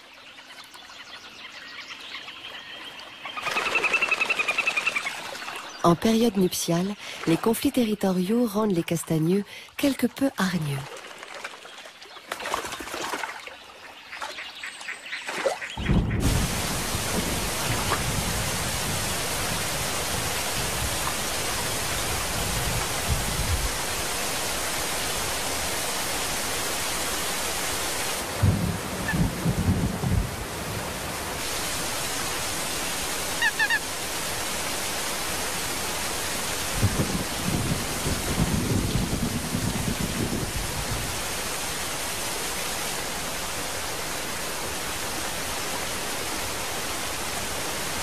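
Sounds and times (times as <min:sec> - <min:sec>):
rushing water: 0:00.0 - 0:48.0
low rumbles: 0:15.8 - 0:23.8
high bird calls: 0:32.9 - 0:33.9.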